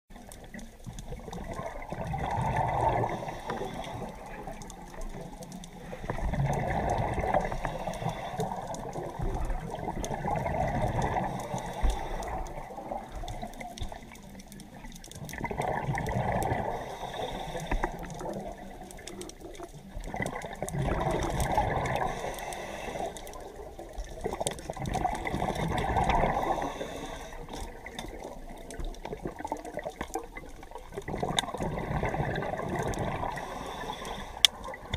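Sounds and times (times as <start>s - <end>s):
regulator bubbles gurgling: 0.1s - 34.9s
diver inhaling: 3.0s - 4.3s, 7.3s - 8.8s, 11.2s - 12.7s, 16.6s - 18.2s, 21.9s - 23.4s, 26.2s - 27.8s, 33.1s - 34.6s.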